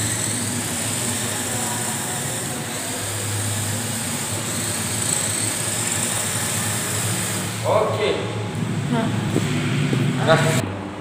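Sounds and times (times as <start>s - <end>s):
small electric motor whining: 0.0s - 7.8s.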